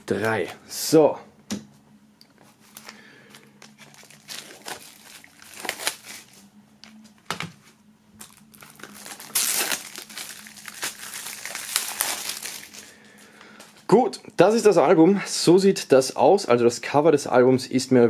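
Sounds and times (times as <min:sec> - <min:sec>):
cellophane wrap crinkling: 0:02.7 - 0:07.1, 0:08.2 - 0:13.7.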